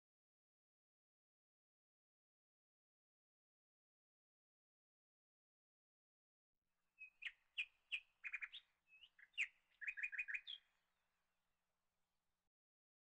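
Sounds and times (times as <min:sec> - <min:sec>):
small bird chirping: 0:07.0 - 0:10.7.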